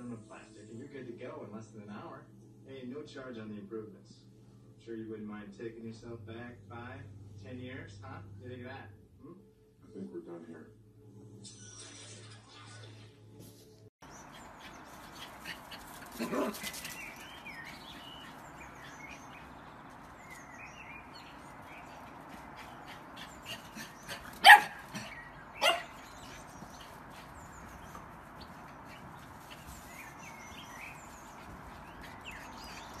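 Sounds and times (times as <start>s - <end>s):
dog barking: 16.1s - 16.8s, 23.4s - 26.4s.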